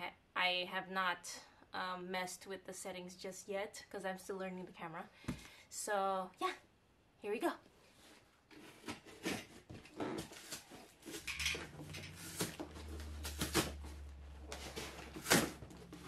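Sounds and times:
cardboard box scraping and rustling: 8.1s - 16.0s.

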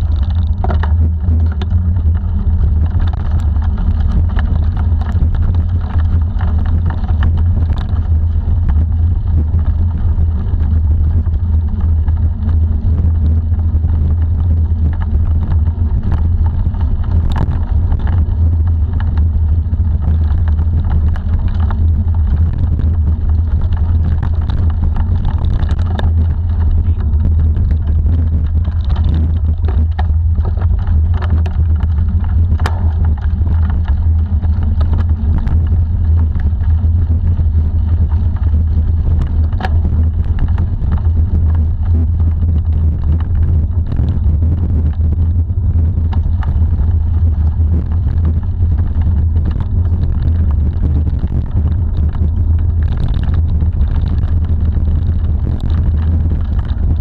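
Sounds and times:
bike knocks and rattles: 0.0s - 38.8s
bicycle tyres rolling on dirt: 0.0s - 57.0s
wind buffeting microphone: 0.0s - 57.0s.

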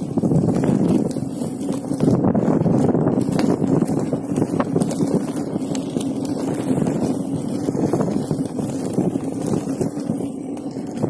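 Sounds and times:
small clicks and ticks: 0.0s - 11.0s
tyre rumbling on dirt trail: 0.0s - 11.0s
wind buffeting microphone: 0.0s - 11.0s.

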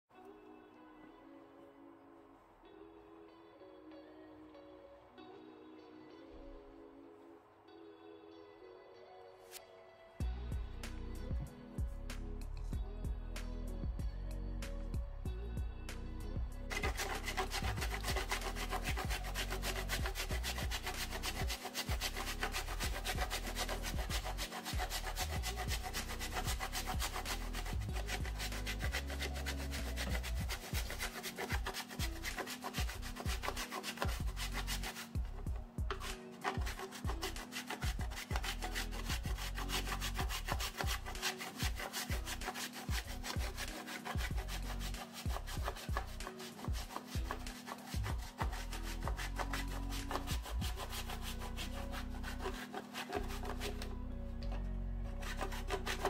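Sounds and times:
chocolate rasping on a grater: 16.7s - 54.0s, 55.2s - 56.0s.

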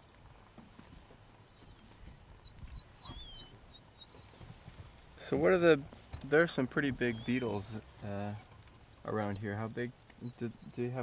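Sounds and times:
thin whistled bird notes: 0.0s - 4.4s
small birds chirping: 0.0s - 11.0s.

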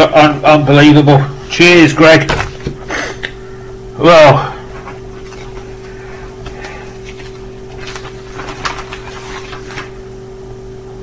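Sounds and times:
steady electrical hum: 0.0s - 11.0s
rustling of packaging: 4.7s - 10.1s.

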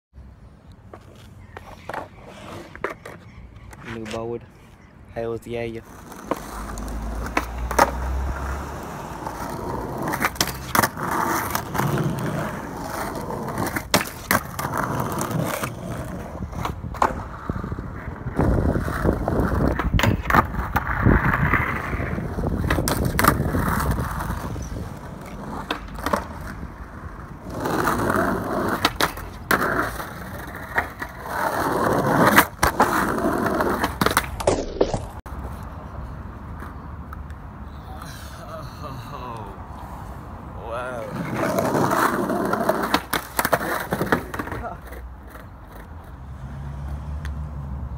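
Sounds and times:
skateboard wheels rolling on asphalt: 0.2s - 47.9s
skateboard grinding on rail: 5.8s - 35.6s, 41.0s - 46.0s
skateboard landing slaps: 13.6s - 14.7s, 33.7s - 35.2s
skateboard tail pops: 19.6s - 21.9s, 33.7s - 35.2s.

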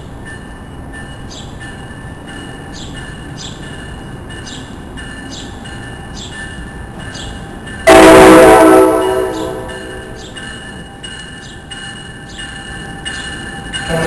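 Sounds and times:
train approaching: 0.0s - 14.0s
train horn blast: 7.8s - 10.3s
bell ringing: 8.9s - 14.0s.

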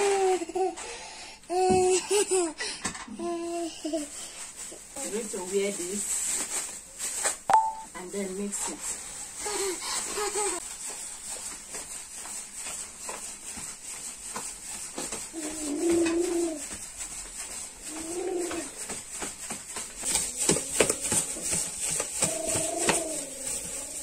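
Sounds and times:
hand squelching batter in bowl: 10.3s - 24.0s
dove cooing: 15.4s - 16.6s, 22.2s - 24.0s.

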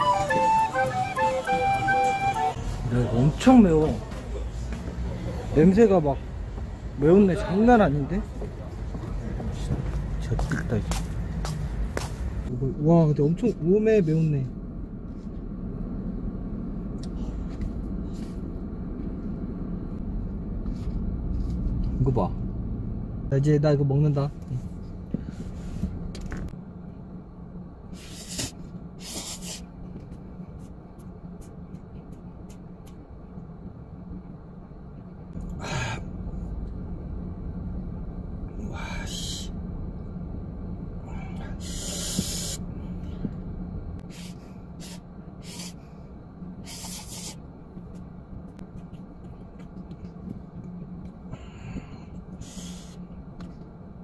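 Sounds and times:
steady low hum: 0.0s - 54.0s
sharp breaths: 41.0s - 43.4s, 51.3s - 53.1s
chewing with wet smacks: 48.6s - 51.2s.

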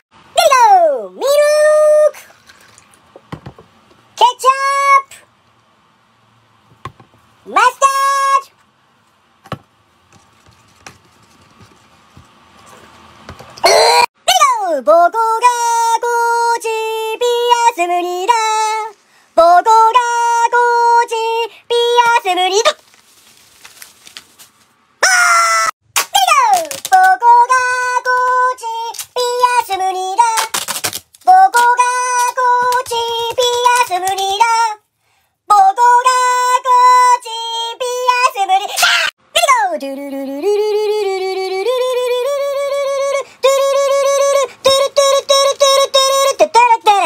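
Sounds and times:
high-pitched singing voice: 0.0s - 2.3s, 4.2s - 5.3s, 7.5s - 8.6s, 13.6s - 22.8s, 25.0s - 34.9s, 35.5s - 47.0s
duct tape ripping off roll: 26.0s - 27.4s, 28.9s - 34.4s.

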